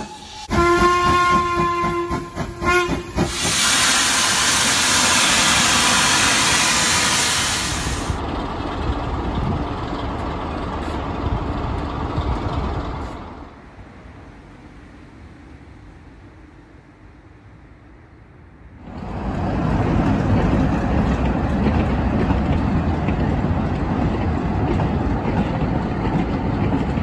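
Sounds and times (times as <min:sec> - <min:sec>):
steam hissing: 0:00.0 - 0:00.7, 0:01.7 - 0:08.2
steam locomotive whistle: 0:00.0 - 0:08.1
diesel engine rumble: 0:07.5 - 0:17.0.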